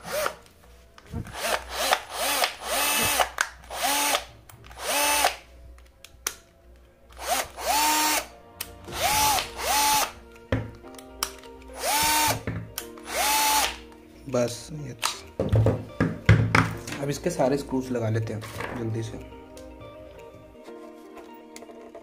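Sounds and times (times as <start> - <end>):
cordless drill motor whine: 0.0 - 0.4, 1.1 - 5.4, 7.2 - 8.3, 8.9 - 10.2, 11.8 - 12.4, 13.0 - 13.8.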